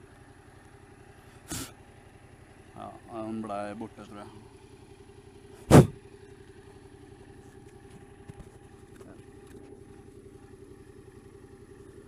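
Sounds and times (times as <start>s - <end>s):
motorcycle engine idling: 0.0s - 12.0s
loud bump: 5.7s - 6.0s.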